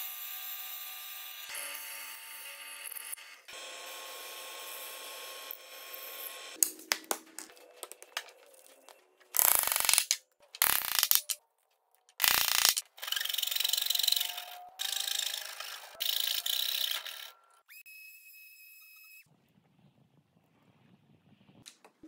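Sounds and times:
parts clicking and clattering: 6.6s - 14.5s.

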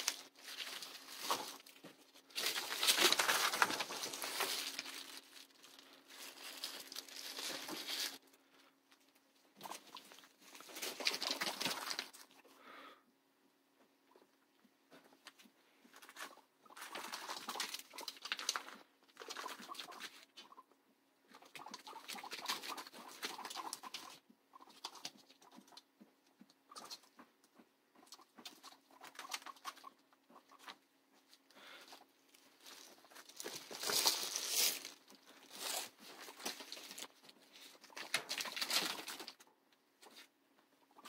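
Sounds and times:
rustling on newspaper and hay: 0.0s - 8.3s, 31.7s - 39.4s.

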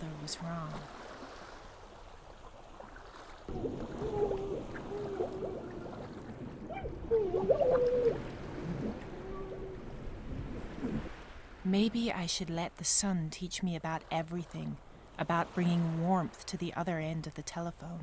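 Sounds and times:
muffled underwater rumble: 3.5s - 11.1s
water bubbling and gurgling: 3.5s - 11.2s.

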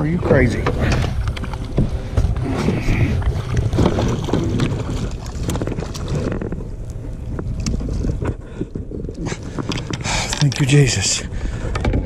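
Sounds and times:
water sounds: 0.0s - 12.0s
wind buffeting microphone: 0.0s - 12.0s.

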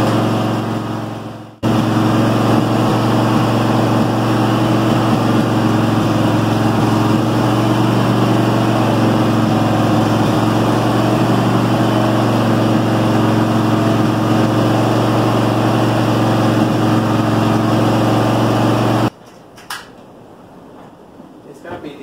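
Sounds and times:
small engine idling fast: 0.0s - 19.1s.

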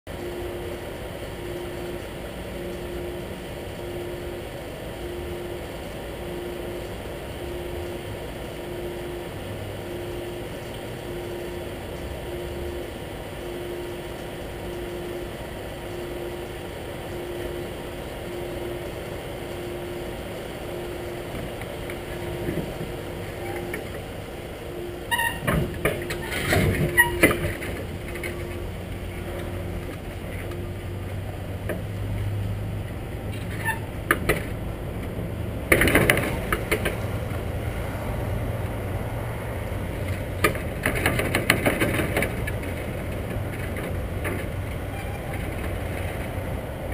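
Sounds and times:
low beeps: 0.1s - 31.6s
diesel truck engine running: 0.1s - 46.9s
loud knocks and clatter: 40.4s - 44.6s.

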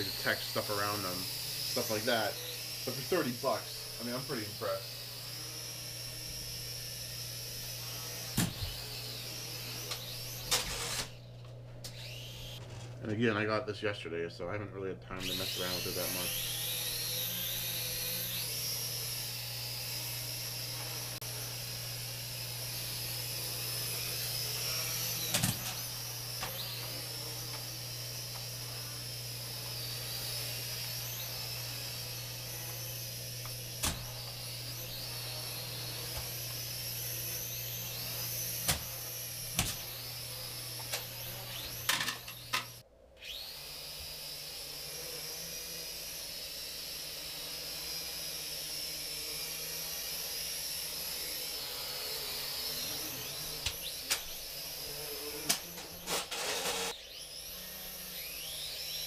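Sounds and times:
toy drone propeller whine: 0.0s - 12.7s, 15.1s - 59.0s.

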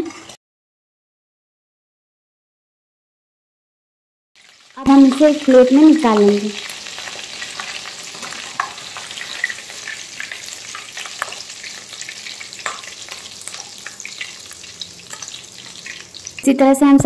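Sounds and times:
hot oil sizzling and crackling: 4.4s - 16.9s.

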